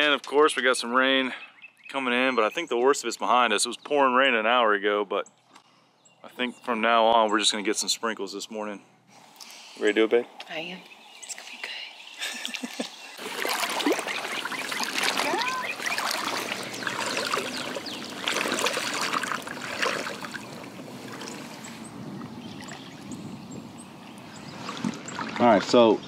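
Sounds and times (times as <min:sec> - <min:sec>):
water sloshing around wading legs: 0:12.3 - 0:23.2, 0:23.8 - 0:25.9.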